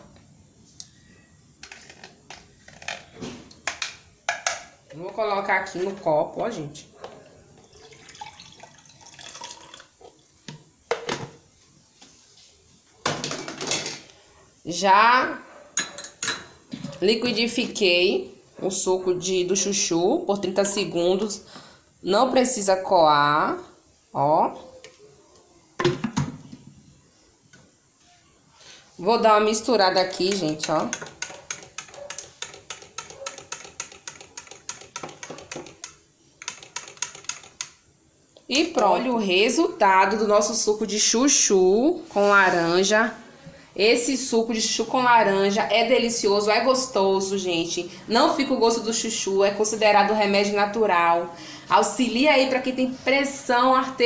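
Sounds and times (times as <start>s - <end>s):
juice pouring into a glass: 7.6s - 10.0s.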